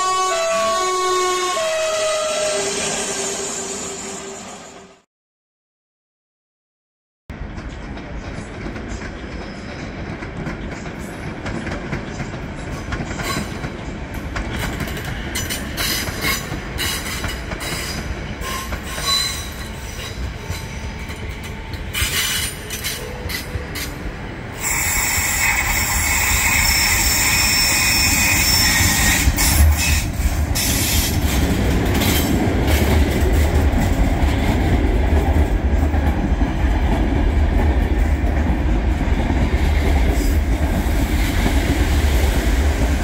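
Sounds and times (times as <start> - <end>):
high brake screech: 2.0 - 5.0, 22.0 - 23.0, 24.6 - 31.2
train wheels rumbling on rail: 7.3 - 43.0.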